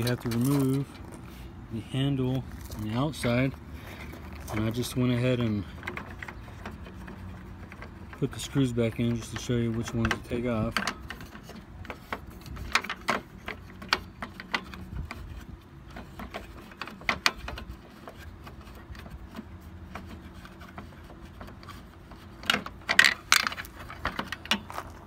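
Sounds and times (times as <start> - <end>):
plastic rattles: 20.1 - 25.0.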